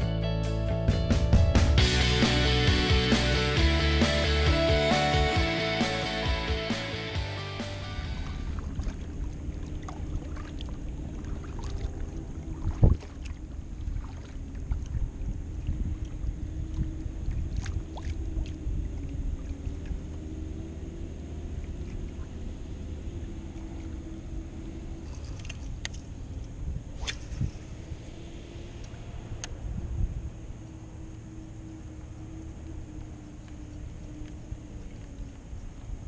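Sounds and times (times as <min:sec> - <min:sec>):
steady low rumble: 0:00.0 - 0:36.0
water lapping against hull: 0:08.2 - 0:27.8, 0:31.1 - 0:36.0.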